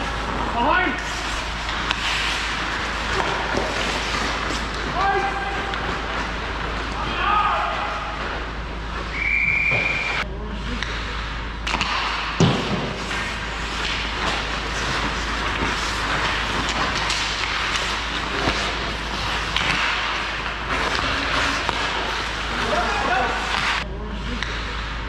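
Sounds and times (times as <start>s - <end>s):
skates and sticks scraping on ice: 0.0s - 24.8s
whistle blast: 9.1s - 10.2s.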